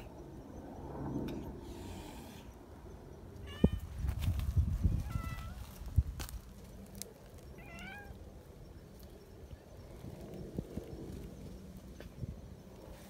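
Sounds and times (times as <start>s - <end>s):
cats meowing: 5.0s - 5.7s, 7.6s - 8.2s.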